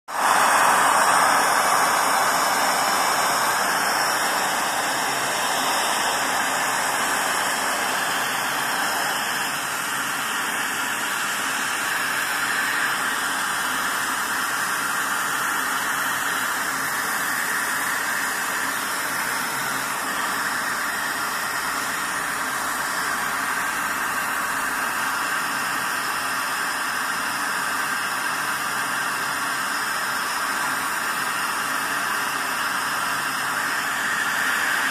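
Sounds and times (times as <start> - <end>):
workshop machine hiss: 0.1 - 34.9.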